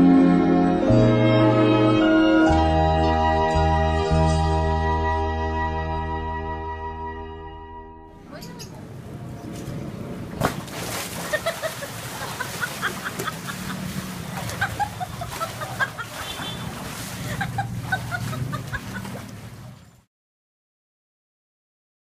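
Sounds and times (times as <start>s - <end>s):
water splashing in a pool: 8.9s - 20.1s.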